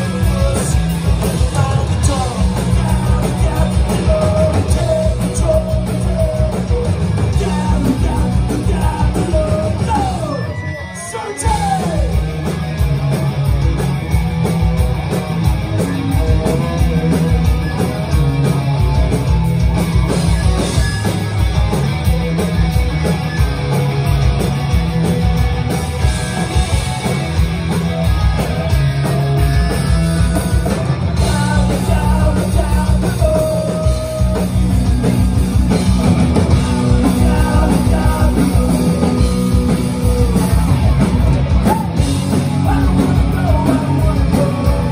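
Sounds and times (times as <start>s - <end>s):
person singing: 0.0s - 12.2s, 31.2s - 34.6s, 36.5s - 40.8s, 41.6s - 44.9s
punk rock band playing live: 0.0s - 44.9s.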